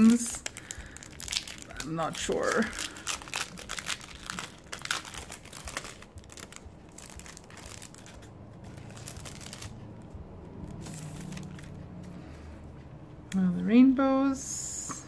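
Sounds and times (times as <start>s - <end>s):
cellophane sleeve crinkling: 0.0s - 9.8s.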